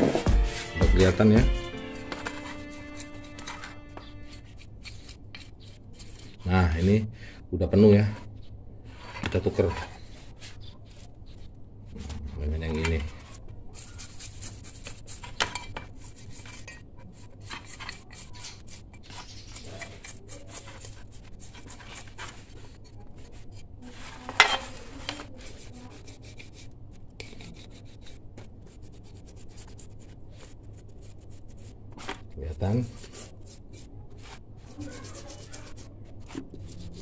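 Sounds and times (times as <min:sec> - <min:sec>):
brush scrubbing metal: 0:00.1 - 0:07.0, 0:12.6 - 0:37.0.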